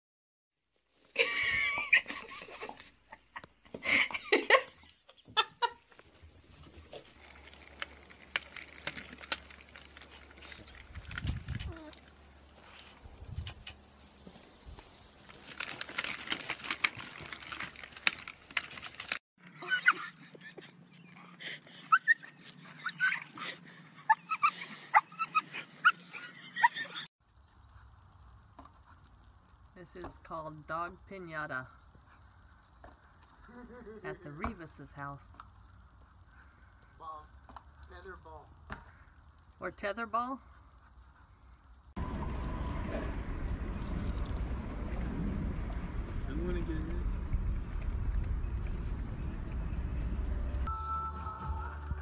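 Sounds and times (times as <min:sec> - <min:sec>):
person laughing: 0:01.2 - 0:05.9, 0:21.4 - 0:27.1, 0:33.4 - 0:34.3
dog whining and yelping: 0:19.6 - 0:27.0.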